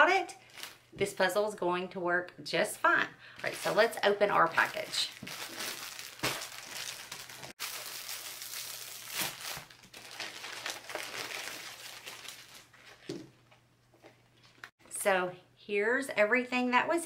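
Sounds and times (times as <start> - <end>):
plastic bag crinkling: 0.4 - 0.9, 3.4 - 13.2.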